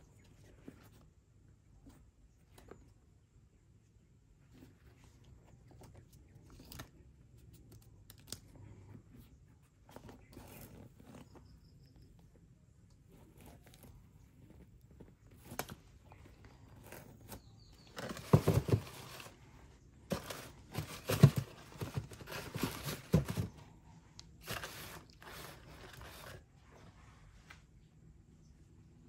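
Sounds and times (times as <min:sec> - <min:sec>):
tissue paper rustling: 0:20.1 - 0:23.5, 0:24.4 - 0:26.4.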